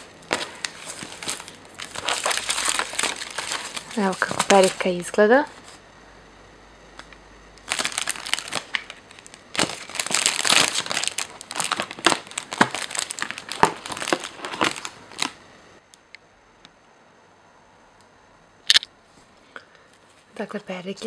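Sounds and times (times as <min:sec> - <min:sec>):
paper rustling and crinkling: 0:00.0 - 0:05.8, 0:07.6 - 0:15.4.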